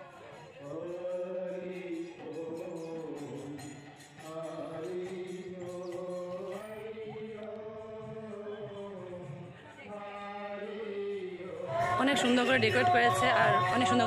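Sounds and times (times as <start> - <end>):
devotional chant singing: 0.0 - 14.0
light percussion ticks: 0.2 - 8.8.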